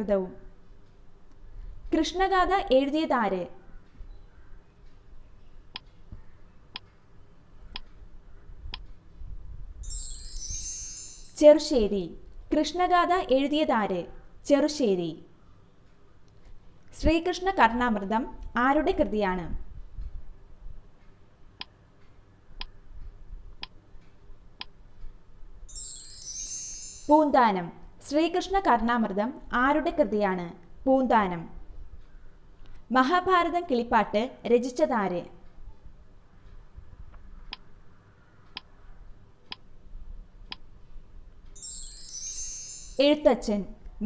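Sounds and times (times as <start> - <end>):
bright high-pitched sound effect: 9.8 - 11.4, 25.7 - 27.2, 41.6 - 43.0.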